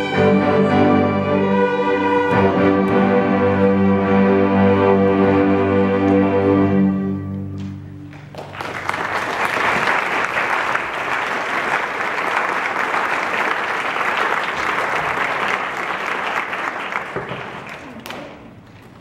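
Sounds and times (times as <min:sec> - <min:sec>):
string orchestra chord: 0:00.0 - 0:08.1
audience applause: 0:08.1 - 0:18.5.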